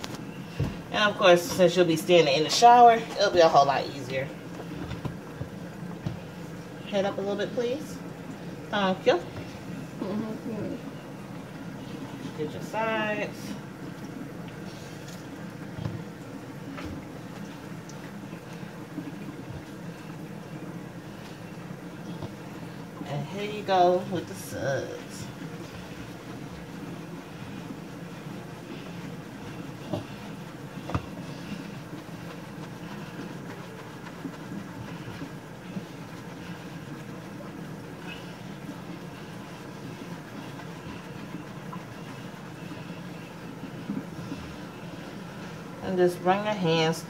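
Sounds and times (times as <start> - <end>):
hands washing wet hair: 0.0 - 47.0
low background hum: 0.0 - 47.0.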